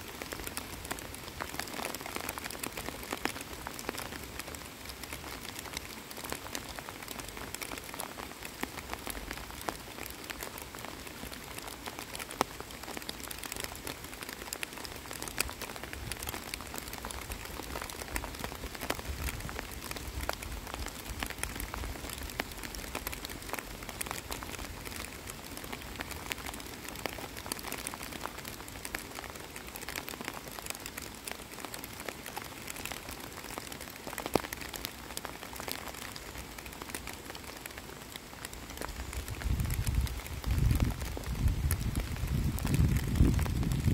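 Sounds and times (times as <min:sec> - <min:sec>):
rain falling on water: 0:00.0 - 0:43.9.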